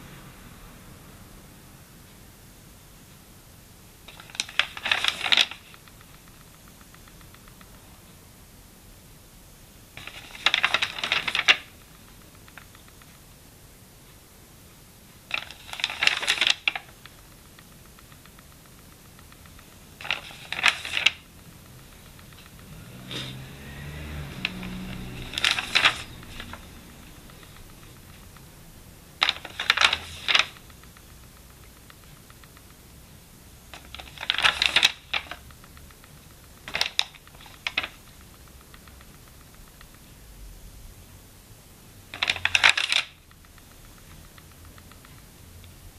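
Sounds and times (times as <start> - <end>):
paper pages turning: 4.1 - 6.2, 10.0 - 11.8, 15.3 - 17.2, 19.3 - 21.3, 22.0 - 28.4, 29.2 - 30.8, 33.8 - 35.5, 36.6 - 38.8, 42.2 - 43.1.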